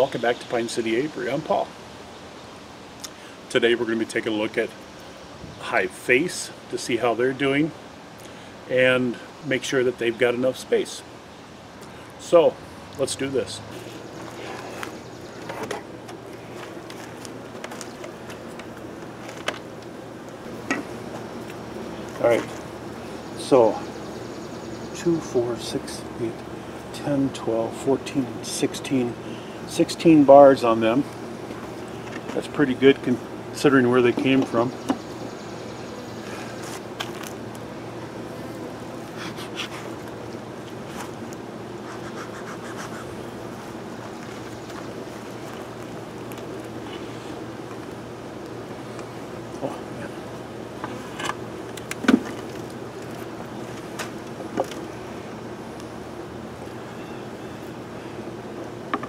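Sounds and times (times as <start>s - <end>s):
steady low hum: 0.0s - 59.0s
bellows puffing: 39.0s - 40.1s, 41.8s - 43.5s.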